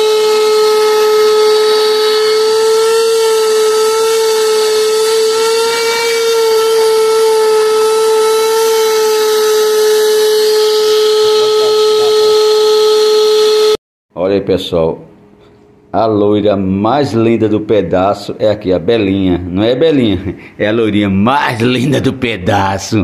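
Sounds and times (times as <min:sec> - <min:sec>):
vacuum cleaner whining: 0:00.0 - 0:13.8.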